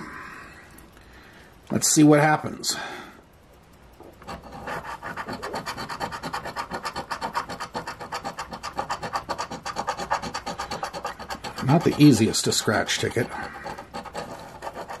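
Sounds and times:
scratching lottery ticket coating: 0:04.1 - 0:15.0.

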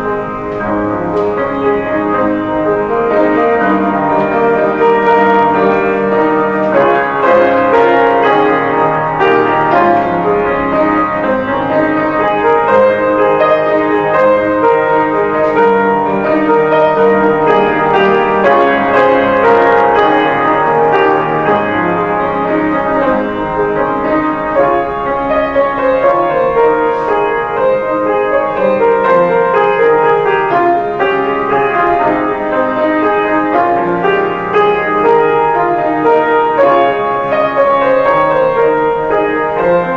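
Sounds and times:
solo grand piano: 0:00.0 - 0:39.9.

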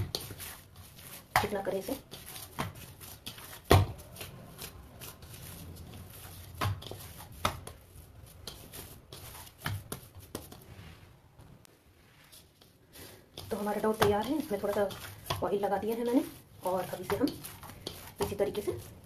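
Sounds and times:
dough squishing and rubbing: 0:00.0 - 0:19.0
dough thumping against bowl: 0:02.4 - 0:04.3, 0:06.5 - 0:07.8, 0:13.4 - 0:15.6.

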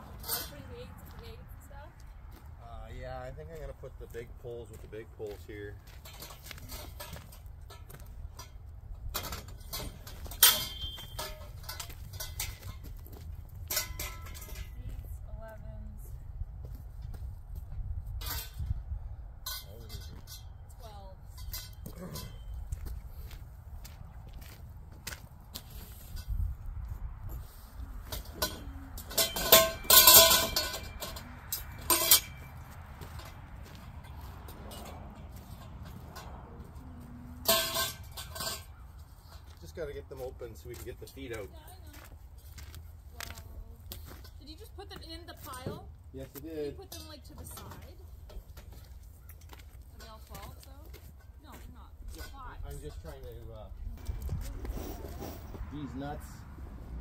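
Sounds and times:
metal poles clinking together: 0:05.5 - 0:14.8, 0:18.2 - 0:18.7, 0:19.4 - 0:22.8, 0:27.4 - 0:39.6
metal pole clang: 0:06.0 - 0:12.8, 0:13.7 - 0:14.8, 0:19.4 - 0:20.6, 0:28.1 - 0:36.6, 0:37.2 - 0:39.5
wind rumble on microphone: 0:14.2 - 0:21.7, 0:25.5 - 0:31.8, 0:53.7 - 0:57.0.

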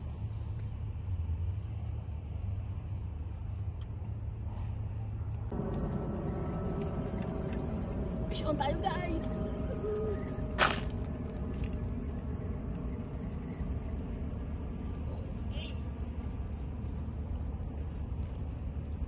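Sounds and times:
low rumble: 0:05.0 - 0:19.0
crickets trilling: 0:05.5 - 0:19.0.

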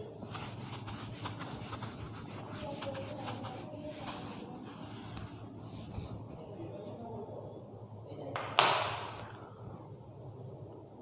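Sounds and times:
eraser wiping whiteboard: 0:00.2 - 0:06.2.

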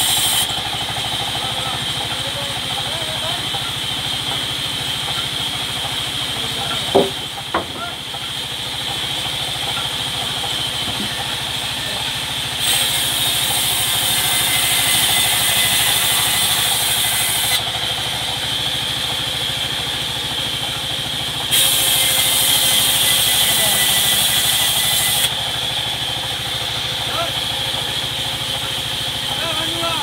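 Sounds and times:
saw blade cutting wood hiss: 0:00.0 - 0:00.6, 0:12.6 - 0:17.6, 0:21.5 - 0:25.4
band saw hum: 0:00.0 - 0:30.0.

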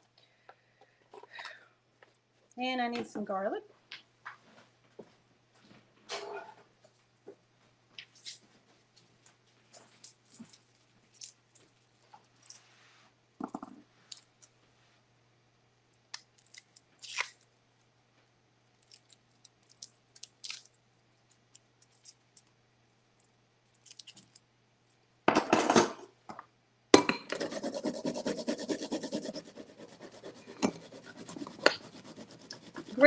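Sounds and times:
garlic rasping on zester: 0:27.4 - 0:33.0
small knife peeling garlic: 0:27.4 - 0:33.0.

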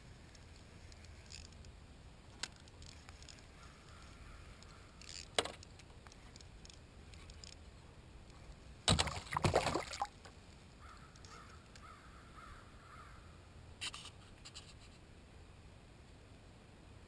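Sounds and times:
fish thrashing and splashing: 0:08.9 - 0:10.2.

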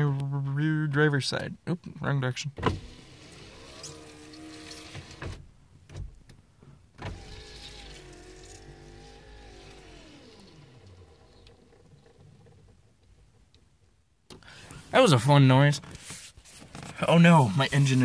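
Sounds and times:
window motor click: 0:02.6 - 0:05.4, 0:07.0 - 0:11.9
power window motor whirring: 0:02.7 - 0:05.4, 0:07.0 - 0:12.7
person talking: 0:16.9 - 0:18.0.

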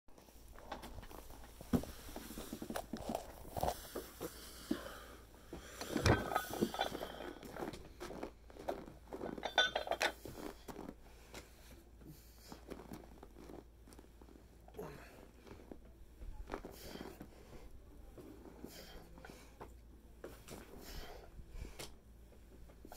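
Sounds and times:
dumbbells clinking: 0:05.8 - 0:07.6, 0:09.2 - 0:10.4.

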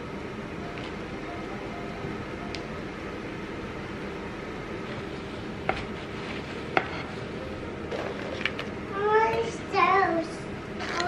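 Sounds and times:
air fryer fan whirring: 0:00.0 - 0:11.0.

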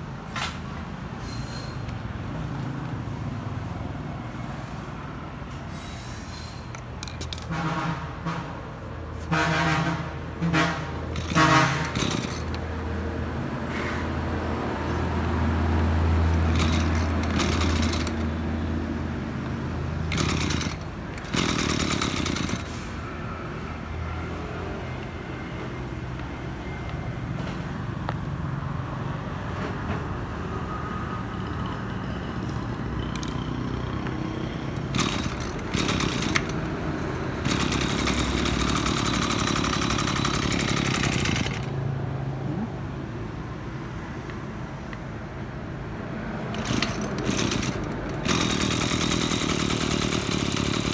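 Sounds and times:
brush cutter engine idling: 0:11.1 - 0:12.6, 0:16.4 - 0:18.4, 0:20.1 - 0:22.8, 0:34.8 - 0:36.7, 0:37.4 - 0:41.8, 0:46.5 - 0:50.9.

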